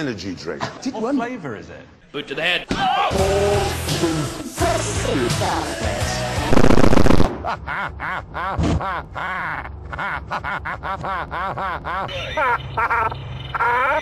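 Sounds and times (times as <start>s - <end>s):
loud distorted buzzing burst: 6.5s - 7.3s.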